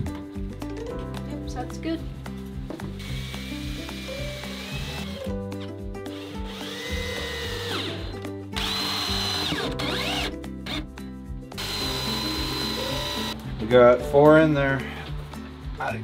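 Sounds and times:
cordless drill driving screws: 0:03.0 - 0:05.3, 0:06.1 - 0:10.8, 0:11.6 - 0:13.4.

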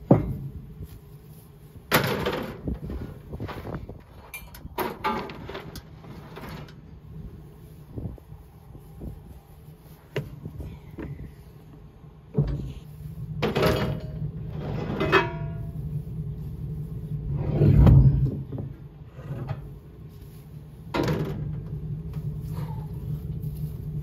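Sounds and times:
metal parts clanking and scraping: 0:01.9 - 0:06.9, 0:13.4 - 0:15.9, 0:17.3 - 0:19.8, 0:20.9 - 0:21.8
steady low hum: 0:05.4 - 0:24.0.

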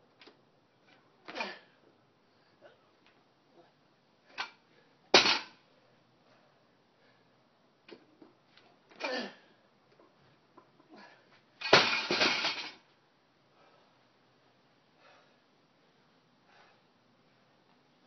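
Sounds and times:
barbell crashing onto pavement: 0:05.1 - 0:05.6, 0:11.6 - 0:12.8.

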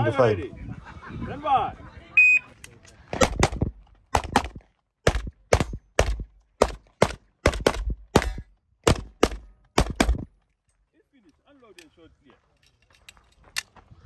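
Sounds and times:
pistol shots: 0:03.1 - 0:10.3.

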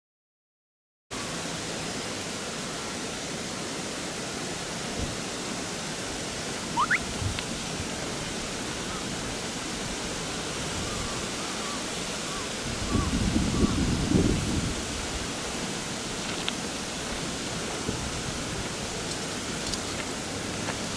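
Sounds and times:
river rushing: 0:01.2 - 0:20.9
short rising chirp: 0:06.8 - 0:07.0.

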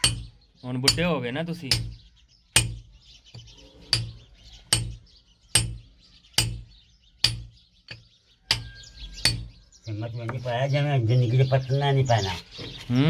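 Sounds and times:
hammer strikes on metal: 0:00.0 - 0:00.3, 0:01.7 - 0:02.9, 0:03.9 - 0:09.5.

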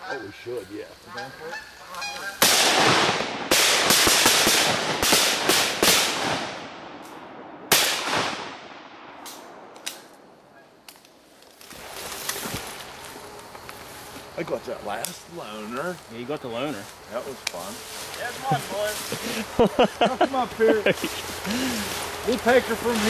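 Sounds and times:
geese honking: 0:00.0 - 0:02.8, 0:12.9 - 0:23.0
shotguns firing: 0:02.4 - 0:10.1.

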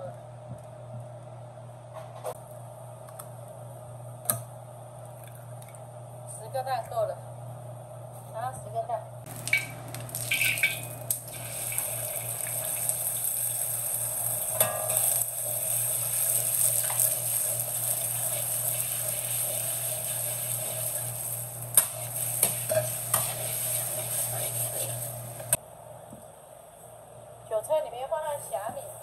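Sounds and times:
eggs sizzling in hot oil: 0:09.3 - 0:25.6
spatula stirring in wok: 0:14.5 - 0:25.5.

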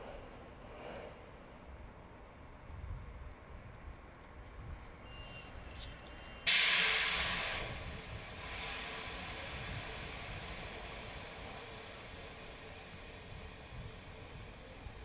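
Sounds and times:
train air brake hiss: 0:06.4 - 0:15.0.

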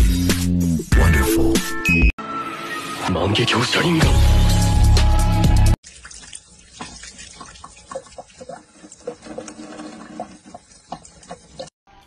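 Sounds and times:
cat lapping water: 0:05.8 - 0:11.8
water running from tap: 0:05.8 - 0:11.8.

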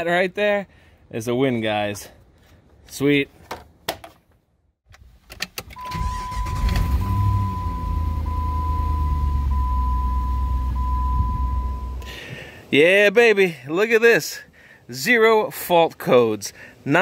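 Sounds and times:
car engine starting and idling: 0:05.1 - 0:12.1.

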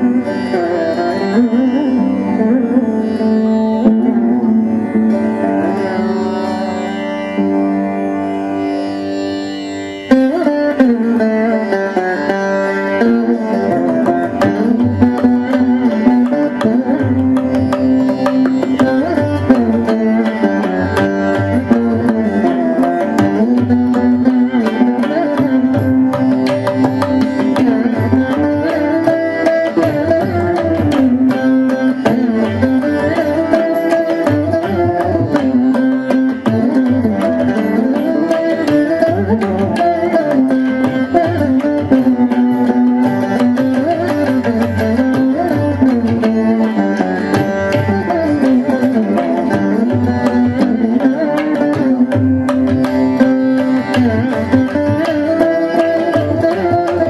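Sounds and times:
plucked string melody: 0:00.0 - 0:57.0
hand drum percussion: 0:13.6 - 0:57.0.

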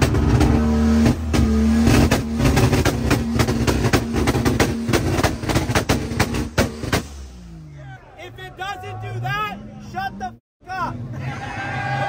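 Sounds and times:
car engine revving: 0:00.0 - 0:08.0.

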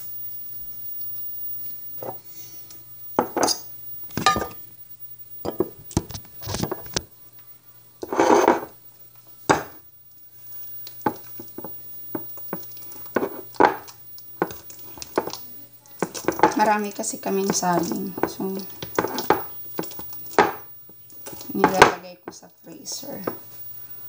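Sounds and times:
kitchen utensils clattering: 0:04.2 - 0:04.6
masher tapping in bowl: 0:04.2 - 0:04.6.

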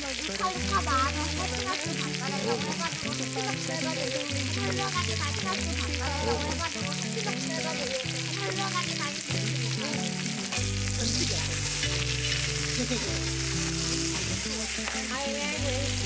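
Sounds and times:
food sizzling in a pan: 0:00.0 - 0:16.0
pop song playing: 0:00.0 - 0:16.0.

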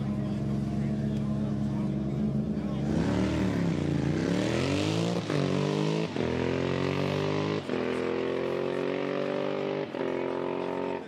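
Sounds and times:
motorcycle accelerating hard: 0:02.7 - 0:11.0.

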